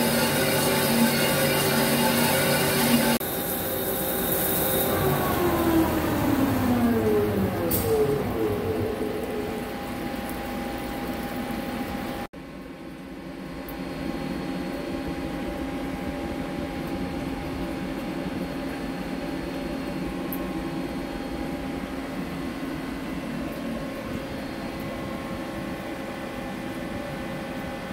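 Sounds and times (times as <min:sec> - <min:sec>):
lathe humming: 0:00.0 - 0:12.0.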